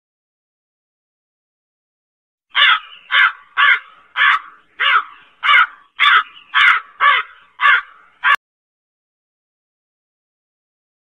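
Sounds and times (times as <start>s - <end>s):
crow cawing: 2.5s - 8.4s.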